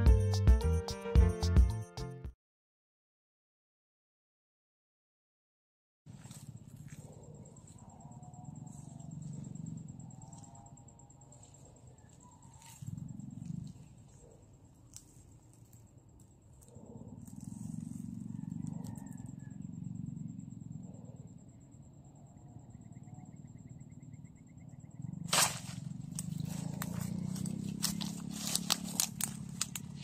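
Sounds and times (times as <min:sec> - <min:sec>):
net swishing into undergrowth: 0:25.3 - 0:25.8
plants rustling: 0:25.3 - 0:30.0.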